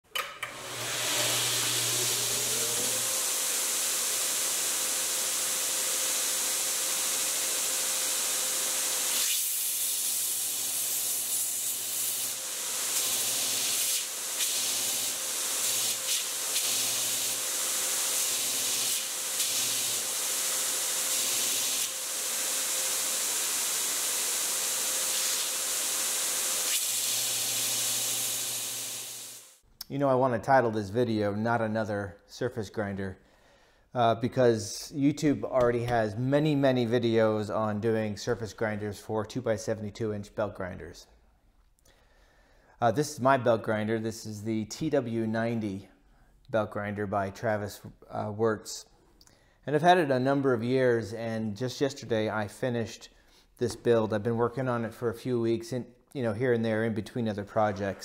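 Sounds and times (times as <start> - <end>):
blades grinding: 0.5 - 7.8
motor whine: 0.5 - 9.1
belt grinder hiss: 0.5 - 29.6.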